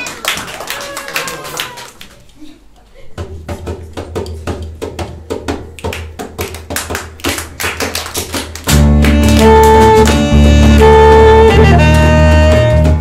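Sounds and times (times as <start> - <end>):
band playing: 8.6 - 13.0
rhythmic taps keeping time: 8.6 - 13.0
bass holding notes: 8.7 - 13.0
saxophone: 8.7 - 13.0.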